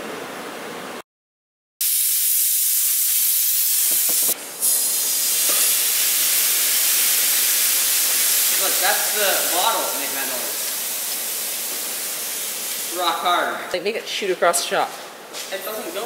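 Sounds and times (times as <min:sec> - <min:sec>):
compressed air hissing: 0:01.8 - 0:13.2.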